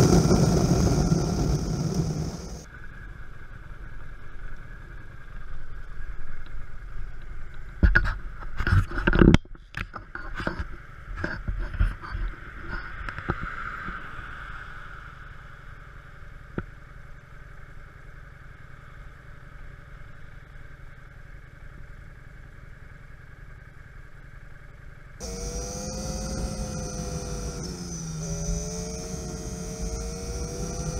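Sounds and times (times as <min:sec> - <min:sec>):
wind buffeting microphone: 0:00.0 - 0:02.7.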